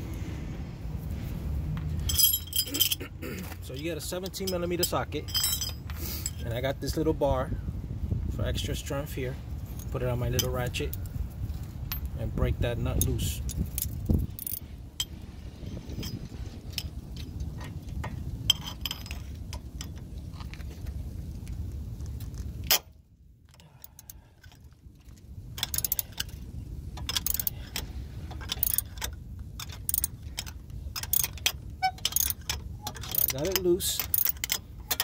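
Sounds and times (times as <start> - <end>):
low rumble: 0.0 - 3.2
ratchet wrench clicking: 25.6 - 26.4, 27.0 - 35.0.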